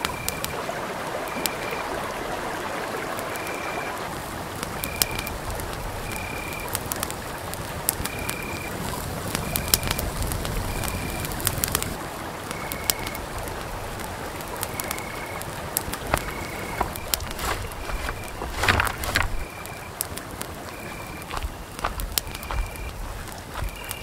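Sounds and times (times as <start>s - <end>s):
campfire crackling and popping: 0.0s - 24.0s
animal high whistled call: 23.6s - 24.0s.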